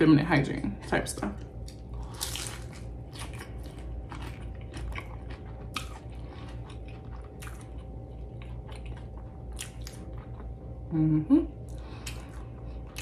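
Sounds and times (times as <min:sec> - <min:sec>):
person chewing crunchy food: 0:01.4 - 0:10.9, 0:11.6 - 0:13.0.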